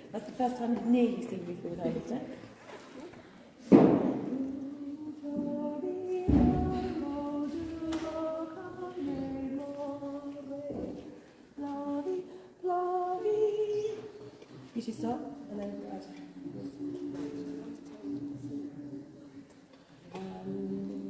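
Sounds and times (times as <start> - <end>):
woman singing unaccompanied: 3.9 - 19.2, 20.0 - 21.0
heavy thump: 6.2 - 7.1.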